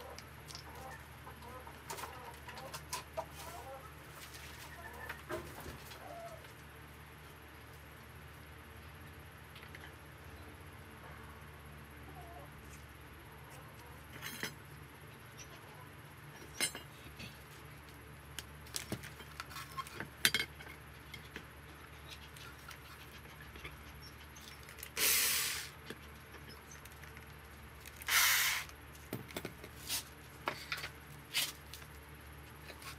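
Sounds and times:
electric drill into steel: 28.1s - 28.7s.

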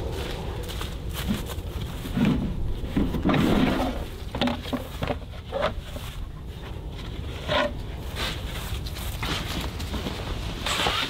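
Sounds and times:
wood and plastic clattering: 2.1s - 6.2s.

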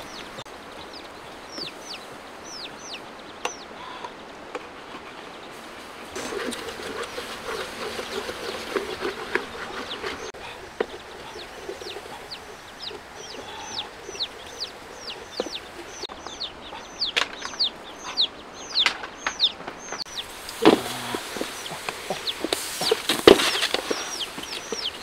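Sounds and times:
bird peeping: 0.0s - 25.0s
wooden spatula stirring: 6.1s - 13.2s.

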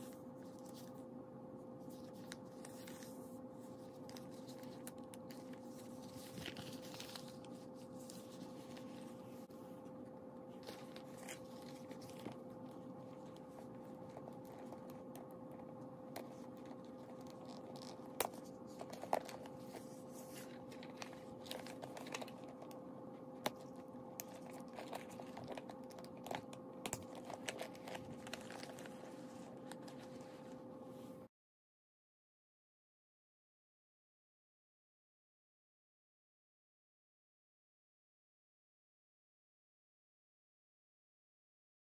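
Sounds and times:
steady low hum: 0.0s - 31.3s
plastic bag crinkling: 23.6s - 30.6s.

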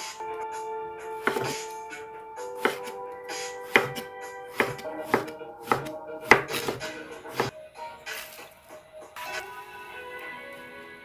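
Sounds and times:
background music: 0.0s - 11.0s
knife knocking on wooden board: 1.2s - 1.5s, 3.7s - 7.5s.

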